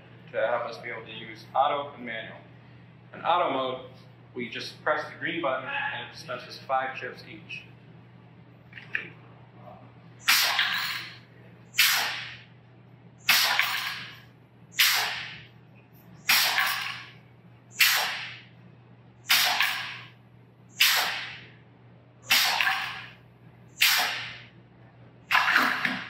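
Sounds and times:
pneumatic air bursts: 10.2s - 11.1s, 11.7s - 12.4s, 13.2s - 15.4s, 16.2s - 17.0s, 17.7s - 18.4s, 19.2s - 20.1s, 20.7s - 21.4s, 22.2s - 23.1s, 23.8s - 24.4s.

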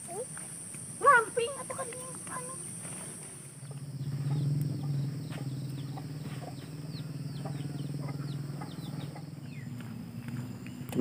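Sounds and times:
steady low hum: 0.0s - 11.0s
chicks peeping: 3.2s - 10.5s.

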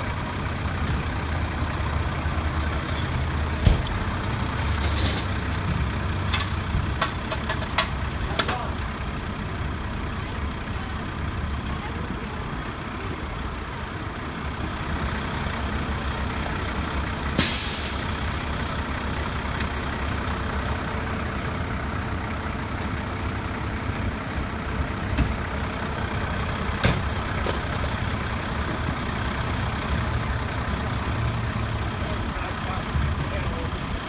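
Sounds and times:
fire engine idling: 0.0s - 34.0s
air-brake hiss: 17.4s - 18.2s.

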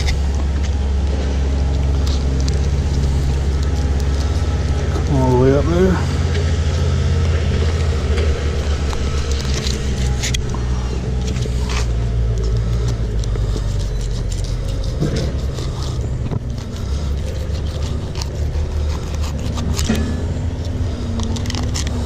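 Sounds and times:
low mechanical hum: 0.0s - 22.0s
knife scraping fish: 6.1s - 22.0s.

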